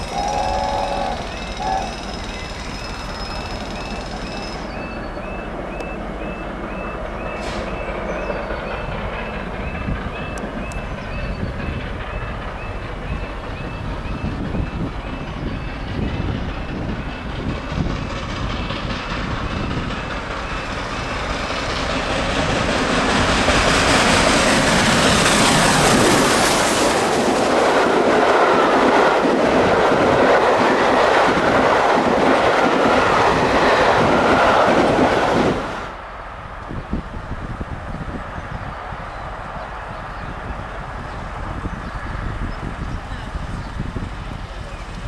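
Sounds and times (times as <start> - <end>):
coach wheels clattering: 0.0 - 6.2
steam locomotive passing: 0.0 - 45.0.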